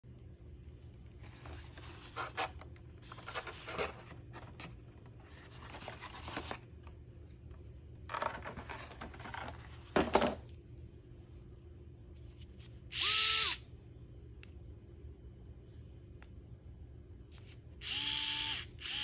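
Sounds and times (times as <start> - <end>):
packaging rustling and scraping: 1.2 - 6.8, 8.1 - 10.4
electric screwdriver motor whine: 12.9 - 13.6, 17.8 - 19.0.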